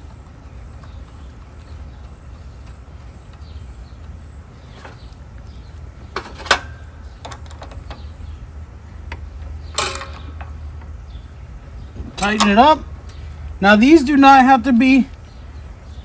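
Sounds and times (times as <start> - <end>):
steady low hum: 0.0 - 16.0
metal clicks of bolt and nut: 9.1 - 10.9.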